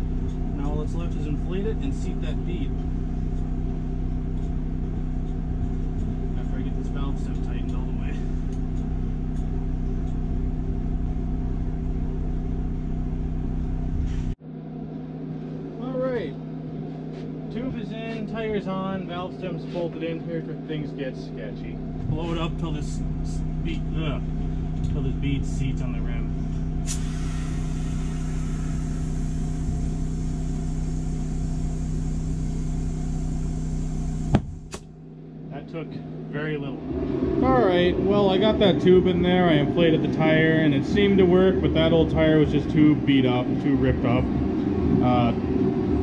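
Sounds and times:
air compressor running: 0:00.0 - 0:14.4, 0:15.2 - 0:36.8, 0:37.4 - 0:46.0
machine humming with low rumble: 0:00.0 - 0:46.0
air hissing through hose: 0:26.8 - 0:34.8.

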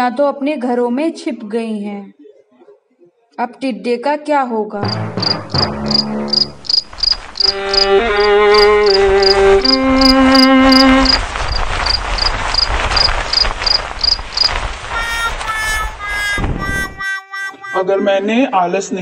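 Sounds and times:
cricket chirping: 0:04.8 - 0:17.2
steady rushing noise: 0:05.2 - 0:17.0
held musical notes: 0:07.2 - 0:11.1, 0:14.9 - 0:19.0.

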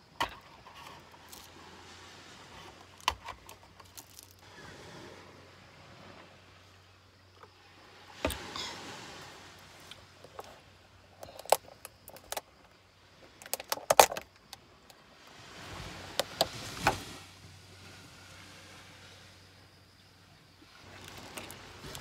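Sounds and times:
soft plastic rustle: 0:02.4 - 0:04.5, 0:20.8 - 0:22.0
plastic box clicks and crackles: 0:11.2 - 0:12.5, 0:13.4 - 0:14.5.

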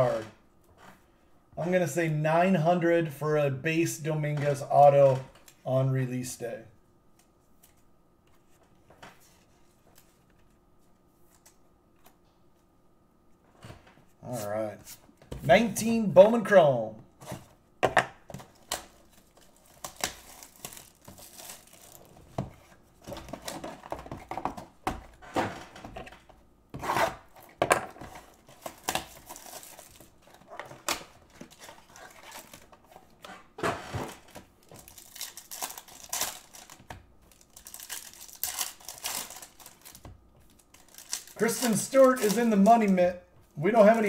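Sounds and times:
foil wrappers tearing and crinkling: 0:18.4 - 0:22.3, 0:28.2 - 0:32.8, 0:34.1 - 0:43.0.

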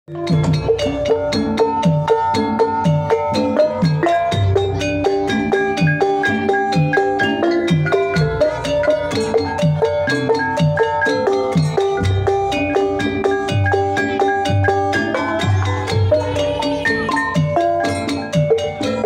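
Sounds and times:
kettle gongs and metallophones: 0:00.1 - 0:19.0.

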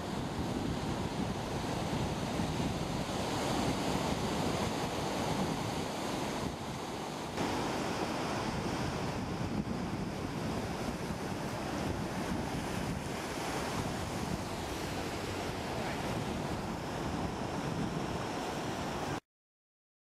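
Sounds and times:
ocean surf breaking: 0:00.0 - 0:19.2
wind rumbling on microphone: 0:00.0 - 0:19.2.

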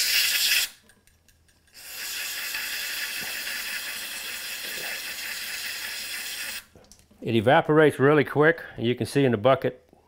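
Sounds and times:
aerosol spray hiss: 0:01.8 - 0:06.6.

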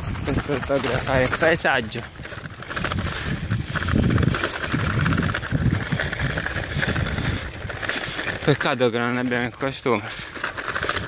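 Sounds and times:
wind on microphone: 0:00.0 - 0:08.5
bicycle tyres crunching on gravel: 0:00.0 - 0:11.0.

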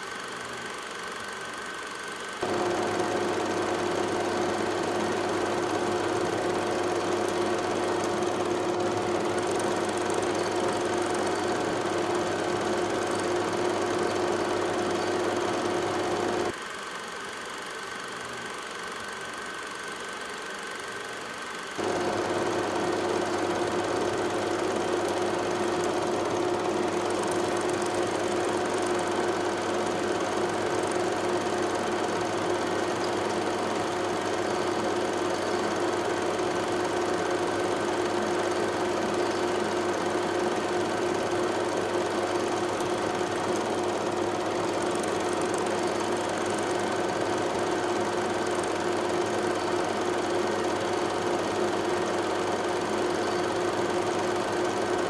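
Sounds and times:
steady mechanical hum: 0:00.0 - 0:55.0.

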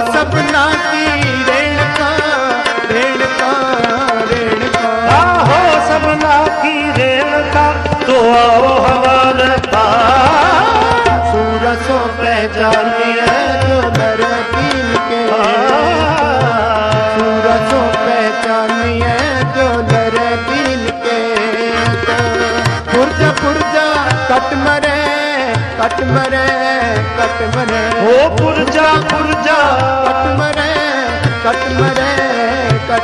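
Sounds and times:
harmonium chords: 0:00.0 - 0:33.0
tabla rhythm: 0:00.0 - 0:33.0.

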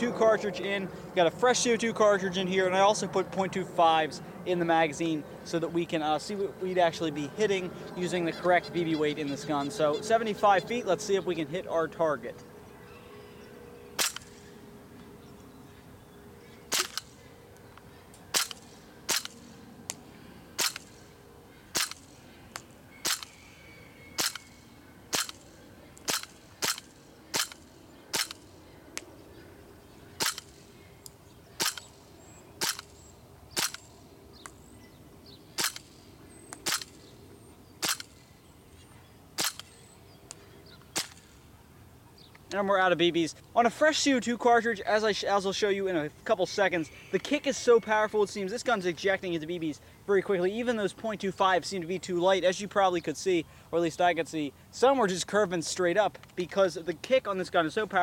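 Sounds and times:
airsoft pistol shots: 0:14.0 - 0:14.4, 0:16.7 - 0:17.1, 0:18.3 - 0:19.4, 0:20.6 - 0:20.9, 0:21.7 - 0:22.1, 0:23.0 - 0:23.4, 0:24.2 - 0:24.5, 0:25.1 - 0:25.4, 0:26.0 - 0:28.4, 0:30.2 - 0:30.5, 0:31.6 - 0:31.9, 0:32.6 - 0:32.9, 0:33.6 - 0:33.9, 0:35.6 - 0:35.9, 0:36.6 - 0:37.0, 0:37.8 - 0:38.1, 0:39.4 - 0:39.7, 0:40.9 - 0:41.3.

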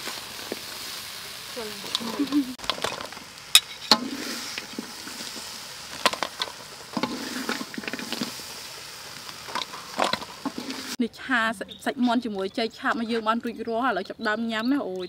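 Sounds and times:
steady hiss: 0:00.0 - 0:11.0
metal utensils scraping a wok: 0:01.6 - 0:08.6, 0:09.4 - 0:11.0.

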